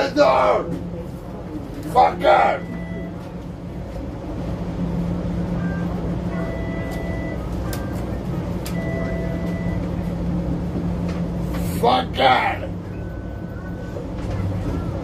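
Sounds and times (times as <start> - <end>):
streetcar hum and rumble: 0.0 - 15.0
long electronic beeps: 2.4 - 3.2, 5.6 - 8.1, 8.7 - 9.9
short higher beeps: 2.4 - 3.2, 5.6 - 8.1, 8.7 - 9.9.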